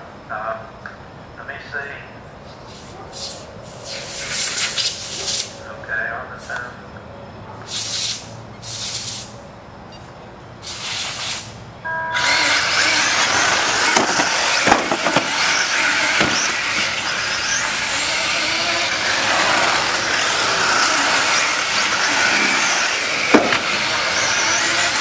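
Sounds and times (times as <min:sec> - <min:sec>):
short hissing bursts: 0:02.4 - 0:05.6, 0:07.7 - 0:09.4, 0:10.6 - 0:11.6
rc cars high-pitched rush: 0:02.5 - 0:05.7, 0:10.6 - 0:25.0
electronic start tone: 0:11.8 - 0:12.6.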